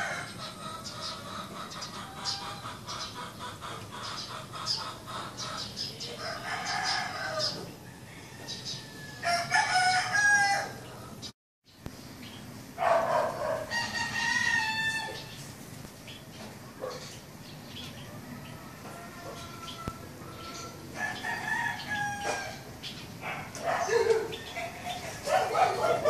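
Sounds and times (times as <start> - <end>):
small birds chirping: 0.3 - 8.9, 10.8 - 13.7, 15.0 - 26.0
rooster crowing: 6.2 - 11.0, 13.1 - 15.3, 18.1 - 22.7.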